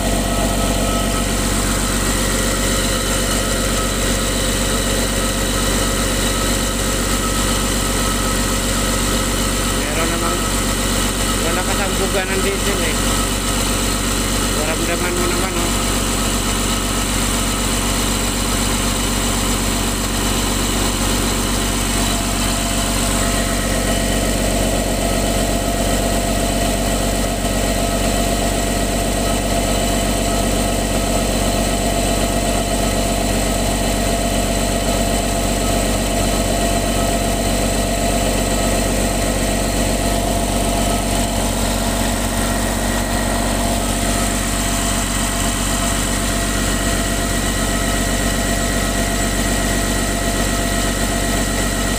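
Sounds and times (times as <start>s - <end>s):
diesel engine idling: 0.0s - 51.9s.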